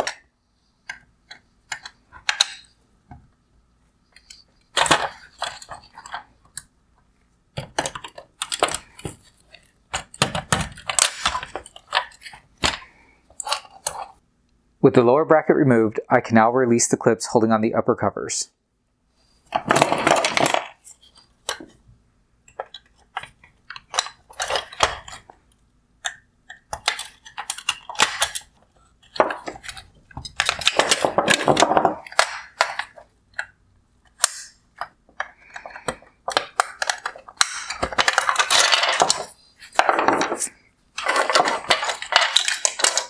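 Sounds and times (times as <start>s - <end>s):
plastic clatter: 4.2s - 6.6s, 7.6s - 14.2s, 19.5s - 21.8s, 26.0s - 33.5s, 34.1s - 43.0s
plastic clips clicking: 26.0s - 28.5s.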